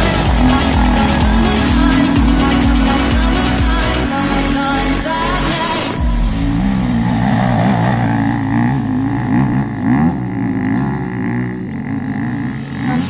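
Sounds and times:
dirt bike engine revving: 0.0s - 13.0s.

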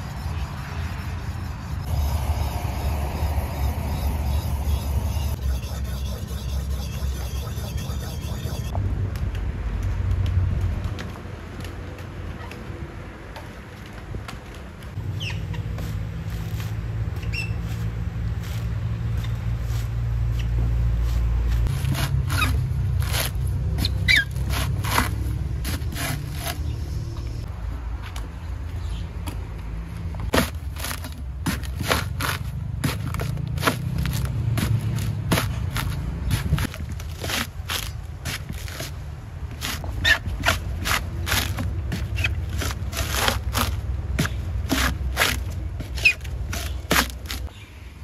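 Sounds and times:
steady low hum: 0.0s - 8.9s
coconut husk scraping and ripping: 15.0s - 26.8s, 30.3s - 47.6s.

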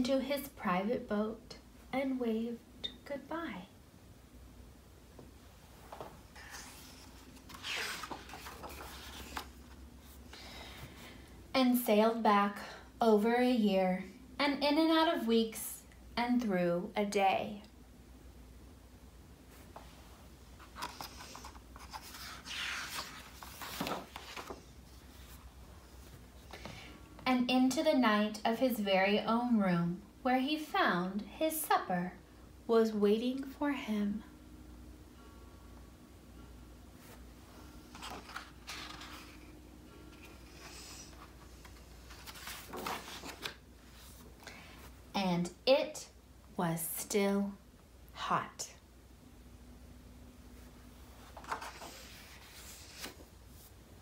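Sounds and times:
book pages turning: 5.9s - 10.2s, 20.6s - 26.7s, 37.8s - 44.9s, 51.1s - 53.7s.

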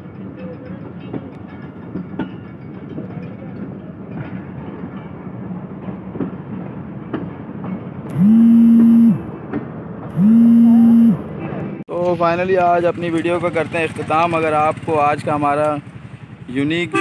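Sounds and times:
train rumble: 0.0s - 8.2s.

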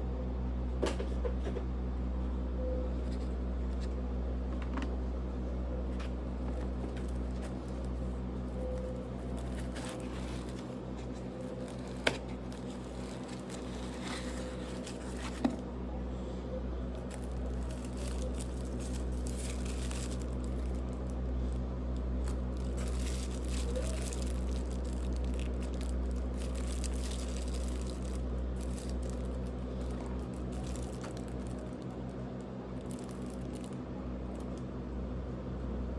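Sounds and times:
steady low hum: 0.0s - 35.9s
plastic wrapping crinkling: 6.0s - 15.6s, 16.9s - 21.2s, 22.1s - 34.6s.

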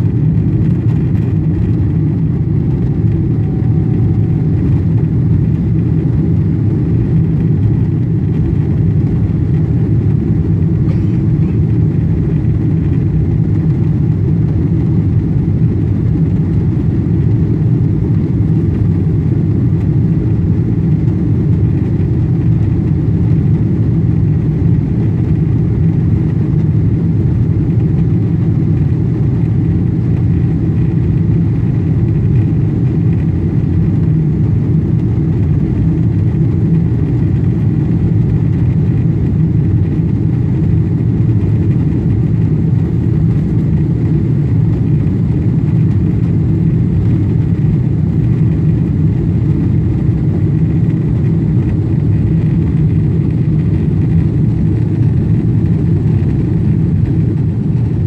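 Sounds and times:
faint high whine: 0.0s - 9.1s
jet engine cabin rumble: 0.0s - 58.0s.

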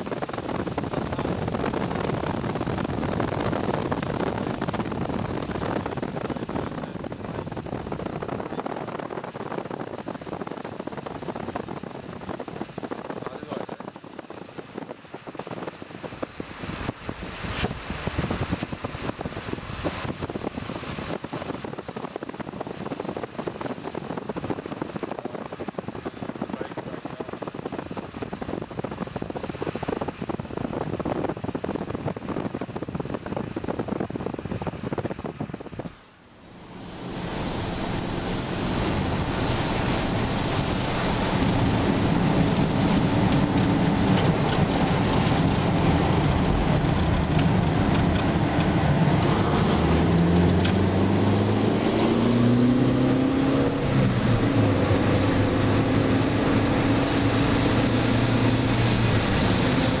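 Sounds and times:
car engine hum: 0.0s - 60.0s
tyres hissing on wet road: 36.5s - 60.0s.

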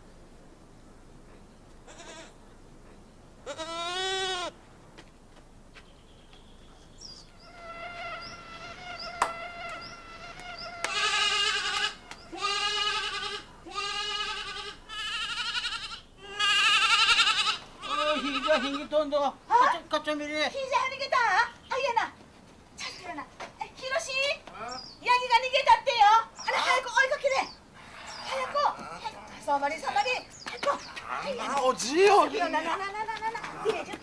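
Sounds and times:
goat kid bleating: 1.9s - 2.4s, 3.4s - 4.6s, 7.4s - 19.0s.

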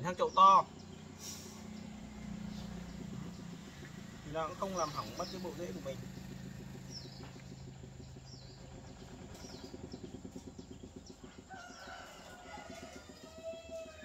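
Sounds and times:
low rapid throb: 0.0s - 14.0s
small bird chirping: 0.0s - 14.0s
rooster crowing: 11.3s - 14.0s.

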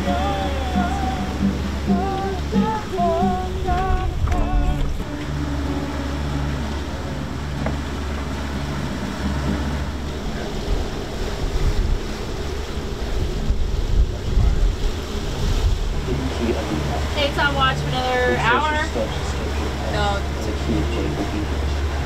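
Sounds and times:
waves washing past hull: 0.0s - 22.0s
wind buffeting microphone: 0.0s - 22.0s.

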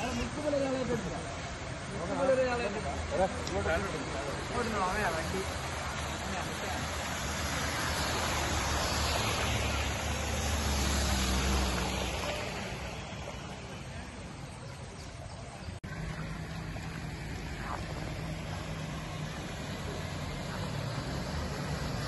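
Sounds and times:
tyres splashing through water: 0.0s - 22.0s
water wash with low hum: 0.0s - 22.0s
engine low rumble: 8.8s - 22.0s.

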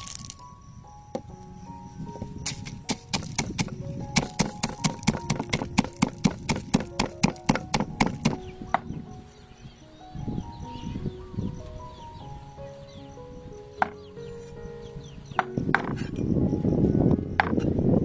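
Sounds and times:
pestle pounding in wooden mortar: 2.5s - 8.4s.

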